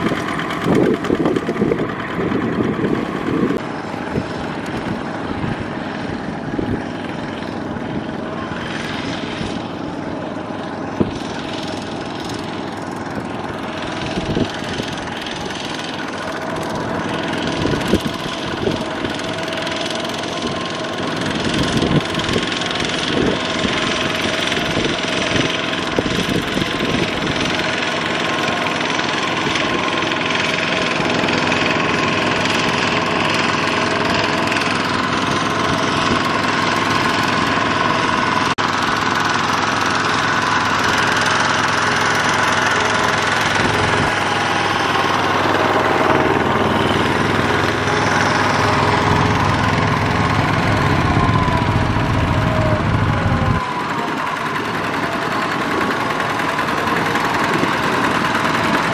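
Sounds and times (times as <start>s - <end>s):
diesel engine running under load: 0.0s - 58.9s.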